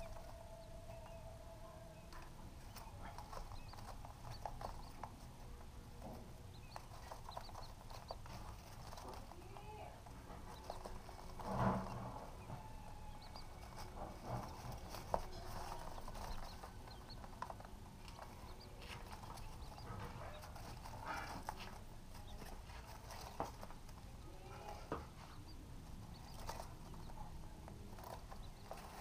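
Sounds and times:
chicks peeping: 0.0 - 29.0
rustling shredded paper: 6.9 - 25.3.

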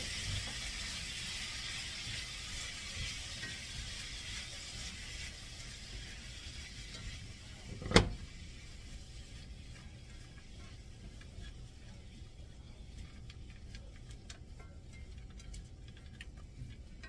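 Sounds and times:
vegetables sizzling in a skillet: 0.0 - 13.6.

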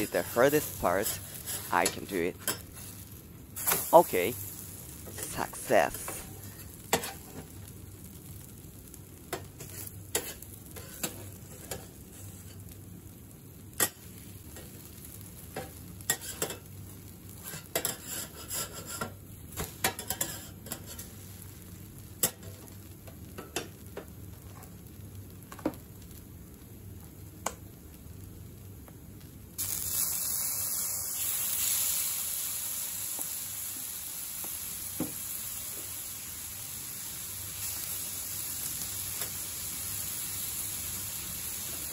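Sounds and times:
food frying on griddle: 0.0 - 41.9
sauce sizzling: 0.0 - 41.9
metal spatulas scraping: 17.4 - 19.1.

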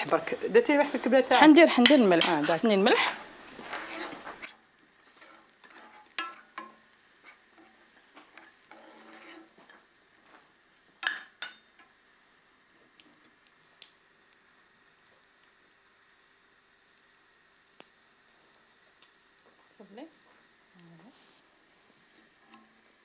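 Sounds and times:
vegetables frying in a pan: 0.0 - 23.0
utensil stirring: 0.8 - 12.0, 22.1 - 22.9.

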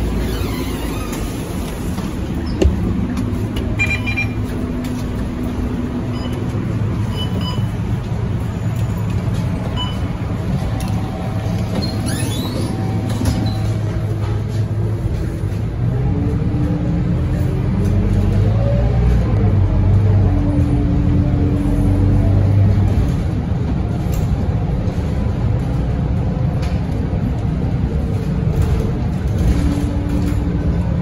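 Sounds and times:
bus diesel engine humming: 0.0 - 31.0
short high beeps: 3.8 - 4.4.

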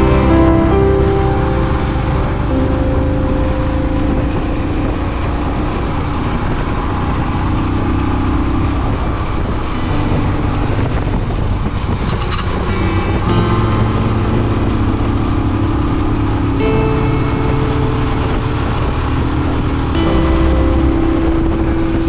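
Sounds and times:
motorcycle engine cruising: 0.0 - 22.0
wind and road noise: 0.0 - 22.0.

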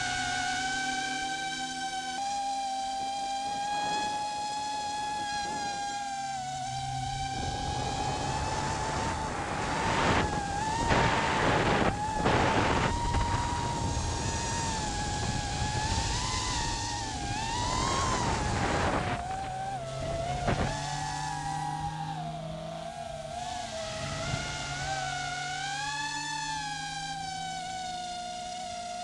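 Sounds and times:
drone motors whining: 0.0 - 29.0
road noise: 5.4 - 28.6
rushing wind: 7.3 - 21.5.

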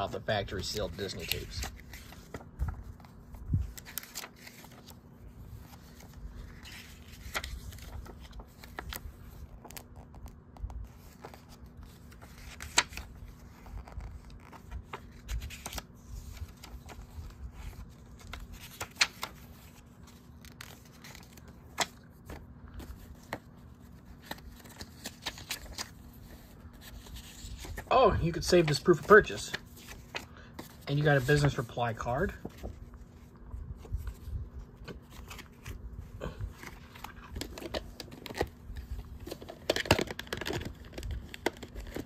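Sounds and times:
cardboard and paper rustling: 0.0 - 42.0.

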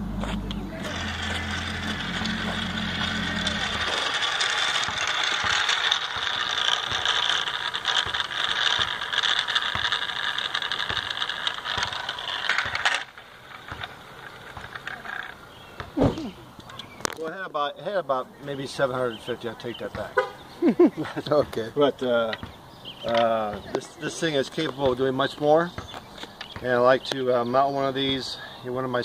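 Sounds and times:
wooden fan whirring rattle: 0.0 - 17.2.

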